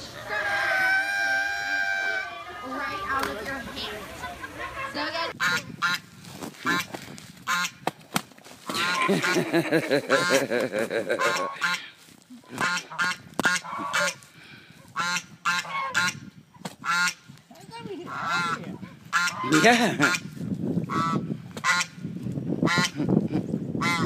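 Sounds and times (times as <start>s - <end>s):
goose honking: 0.0s - 6.0s, 11.1s - 11.9s, 12.6s - 14.2s, 15.0s - 16.2s, 18.0s - 20.3s, 20.9s - 22.0s, 23.8s - 24.0s.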